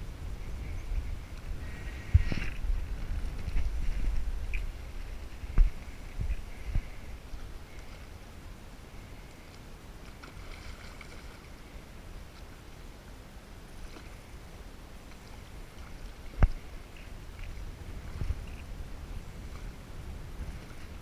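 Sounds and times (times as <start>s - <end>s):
wind rumble on microphone: 0.0s - 21.0s.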